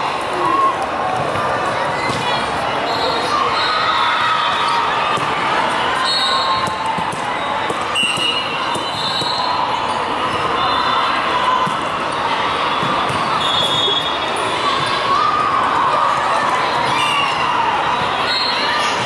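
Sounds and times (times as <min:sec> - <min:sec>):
many voices: 0:00.0 - 0:19.0
shoe squeaks: 0:07.4 - 0:09.5.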